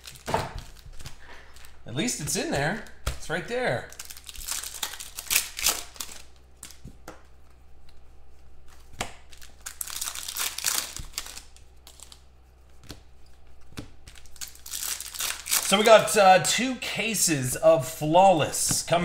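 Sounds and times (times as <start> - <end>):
wrapper crinkling: 0.0 - 1.9, 3.9 - 6.9, 8.8 - 12.2, 14.1 - 15.9
cards tapping: 12.8 - 15.7, 18.5 - 19.0.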